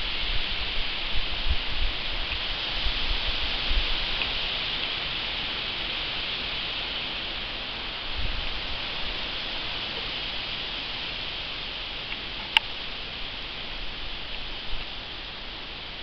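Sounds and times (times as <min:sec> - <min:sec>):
leaves rustling in breeze: 0:00.0 - 0:16.0.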